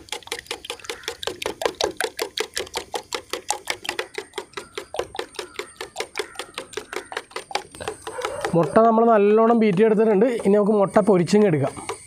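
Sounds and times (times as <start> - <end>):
whisk clicking against metal bowl: 0.0 - 12.0.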